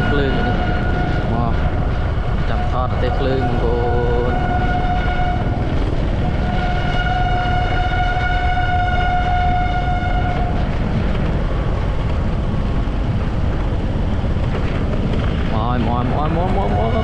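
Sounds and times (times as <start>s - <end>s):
train horn blast: 0.0s - 10.7s, 15.9s - 17.0s
low rumble: 0.0s - 17.0s.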